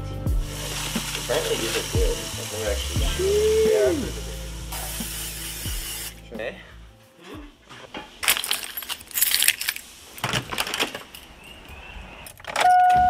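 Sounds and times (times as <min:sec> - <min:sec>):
steady hiss: 0:00.0 - 0:06.6, 0:08.1 - 0:12.2
keys jingling: 0:08.2 - 0:11.5.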